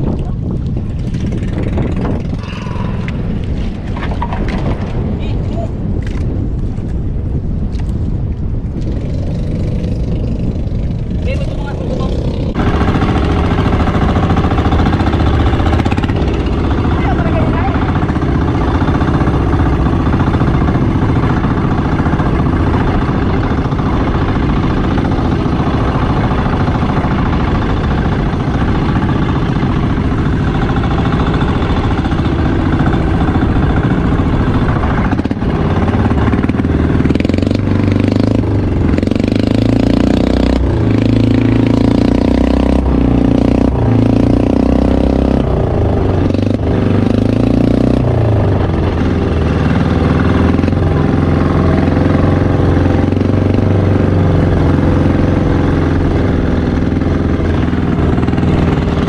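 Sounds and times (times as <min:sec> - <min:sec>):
boat engine running: 0:00.0 - 0:59.0
boat wake wash: 0:07.5 - 0:46.9.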